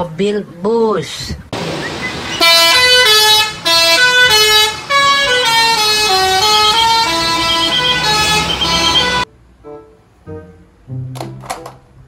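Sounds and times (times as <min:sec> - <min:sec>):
musical vehicle horn: 0:02.4 - 0:09.3.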